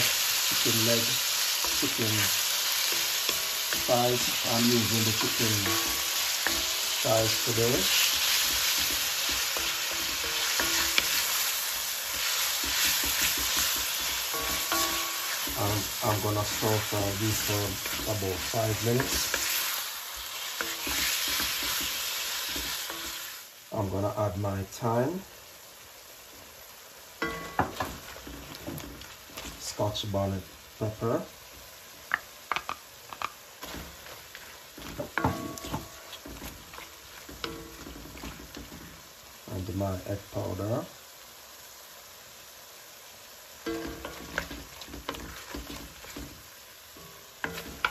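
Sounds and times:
chicken sizzling in oil: 0:00.0 - 0:47.9
utensil tapping against a pan: 0:32.1 - 0:33.4.

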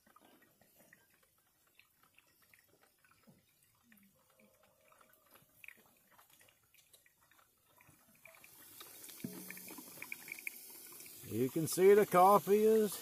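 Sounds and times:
coffee dripping into a carafe: 0:00.0 - 0:13.0
coffee maker hissing: 0:08.5 - 0:13.0.

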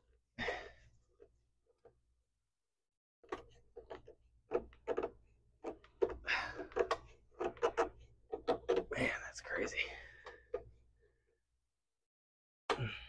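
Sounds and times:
miter saw parts knocking and clicking: 0:03.2 - 0:08.9.

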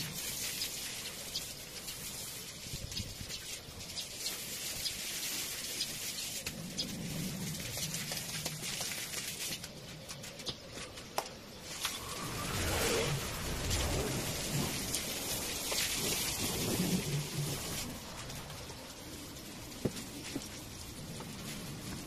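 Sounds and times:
garden hose spraying water: 0:00.0 - 0:22.0.

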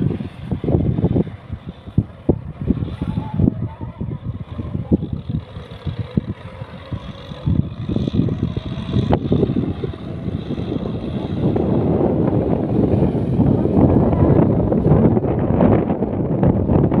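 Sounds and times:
tractor diesel engine rumbling: 0:00.0 - 0:17.0
wind buffeting microphone: 0:00.0 - 0:17.0.

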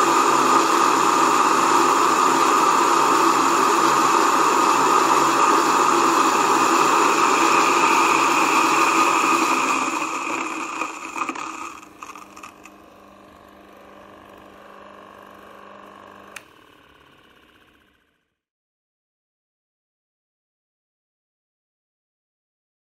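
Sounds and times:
electric grain mill grinding: 0:00.0 - 0:18.2.

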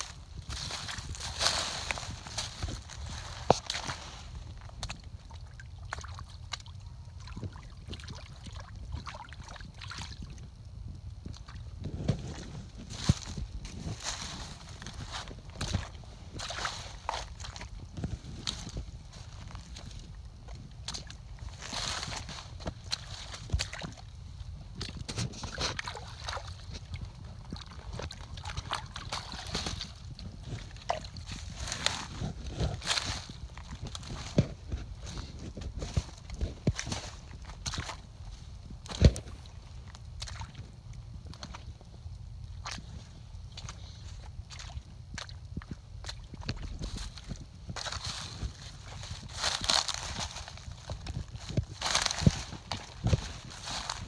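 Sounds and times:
boots sloshing in muddy puddle: 0:00.0 - 0:10.3, 0:11.4 - 0:54.0
twigs cracking underfoot: 0:00.0 - 0:54.0
small splashes and clicks: 0:04.6 - 0:11.9, 0:20.8 - 0:32.0, 0:35.9 - 0:48.2.

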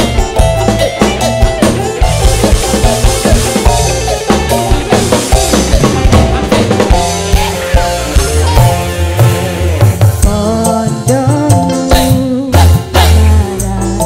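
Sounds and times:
sustained melodic tones: 0:00.0 - 0:11.2
bass: 0:00.0 - 0:14.0
drum kit beat: 0:00.0 - 0:14.0
hand drums: 0:00.0 - 0:14.0.

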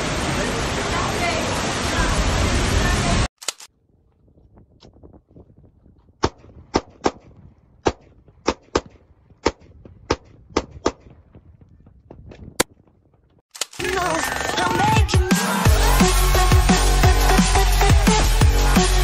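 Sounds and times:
electronic music with heavy bass: 0:13.8 - 0:19.0.

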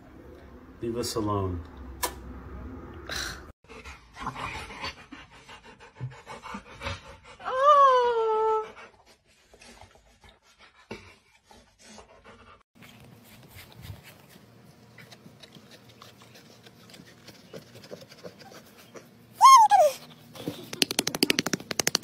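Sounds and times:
dog whining: 0:19.4 - 0:20.1.

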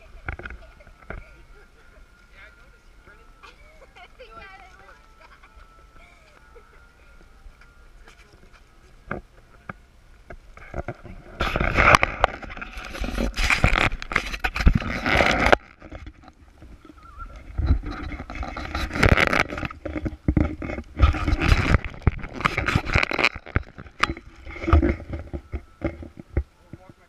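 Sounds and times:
plastic bag crinkling: 0:17.5 - 0:25.5.

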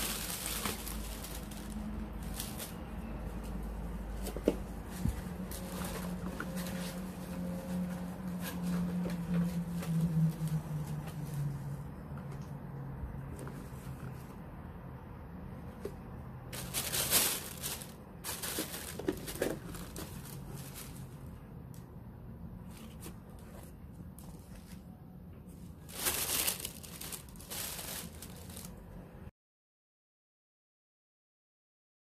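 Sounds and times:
plastic bag crinkling: 0:00.0 - 0:03.3, 0:16.5 - 0:21.3, 0:25.8 - 0:28.9.

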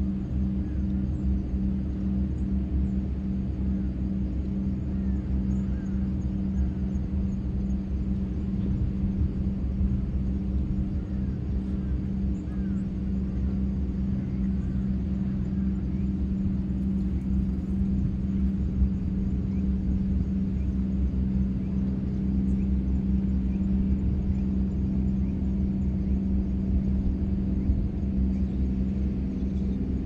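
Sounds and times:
low engine drone: 0:00.0 - 0:30.0.

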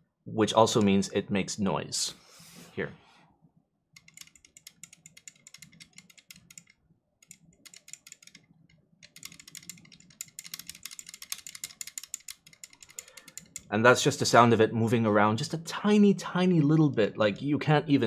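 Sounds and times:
faint plastic rattling clicks: 0:04.0 - 0:13.7.

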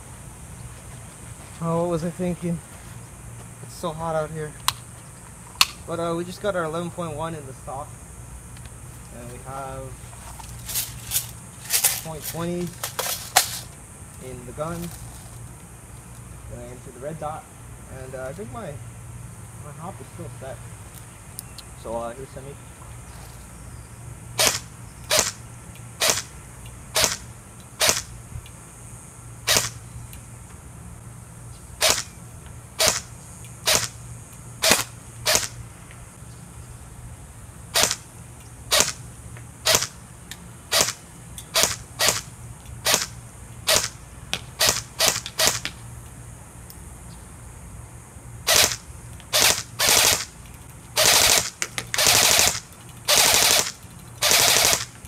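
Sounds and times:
airsoft rifle shots: 0:24.4 - 0:25.4, 0:26.0 - 0:26.3, 0:27.0 - 0:28.1, 0:29.5 - 0:29.8, 0:31.8 - 0:32.1, 0:32.8 - 0:34.0, 0:34.6 - 0:35.6, 0:37.7 - 0:38.1, 0:38.7 - 0:39.0, 0:39.6 - 0:40.0, 0:40.7 - 0:44.0, 0:44.6 - 0:45.8, 0:48.5 - 0:50.3, 0:51.0 - 0:54.9.

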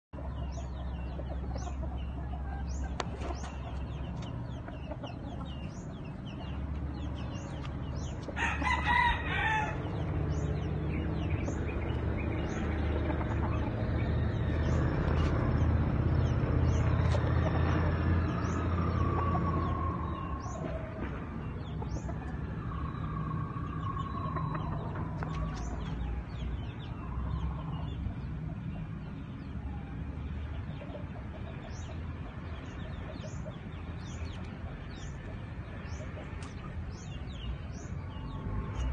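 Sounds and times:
steady low rumble: 0:00.2 - 0:38.9
rooster crowing: 0:08.4 - 0:10.0.

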